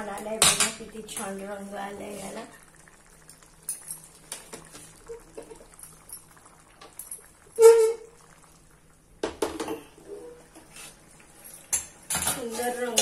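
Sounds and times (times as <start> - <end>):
steel pan squealing on grate: 7.6 - 8.0.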